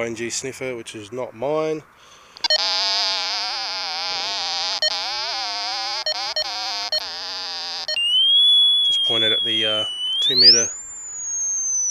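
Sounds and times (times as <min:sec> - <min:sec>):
buzzy wavering receiver tone: 0:02.4 - 0:11.9.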